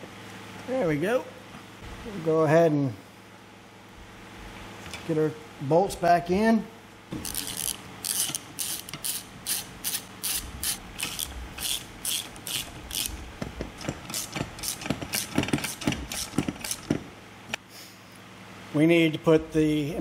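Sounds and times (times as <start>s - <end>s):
socket ratchet clicking: 7.2s - 13.1s.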